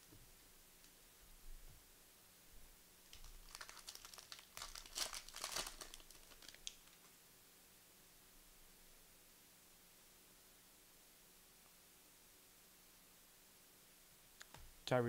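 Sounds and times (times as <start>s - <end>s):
foil wrapper tearing and crinkling: 3.2s - 7.0s.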